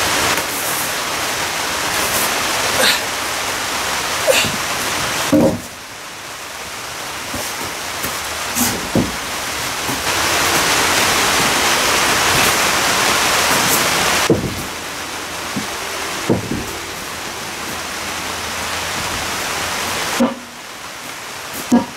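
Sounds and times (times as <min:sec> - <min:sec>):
steady rushing noise: 0:00.0 - 0:21.9
timber knocking dully: 0:04.4 - 0:05.8, 0:07.3 - 0:14.9, 0:15.5 - 0:16.9.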